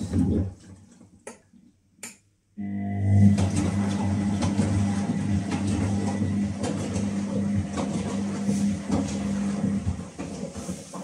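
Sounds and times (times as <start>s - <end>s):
washing machine humming: 2.6s - 11.0s
washing machine clicks and rattles: 3.3s - 11.0s.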